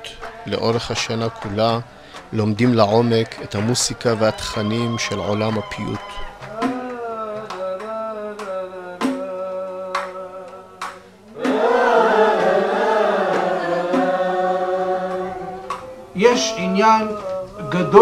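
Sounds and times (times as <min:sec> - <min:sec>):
choir singing together: 0:00.0 - 0:18.0
percussive hits: 0:10.8 - 0:16.0.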